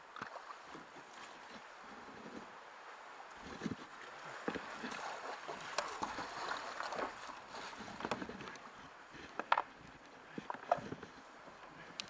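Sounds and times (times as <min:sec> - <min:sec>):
water lapping against hull: 0:03.3 - 0:12.0
paddle strokes splashing: 0:03.4 - 0:12.0.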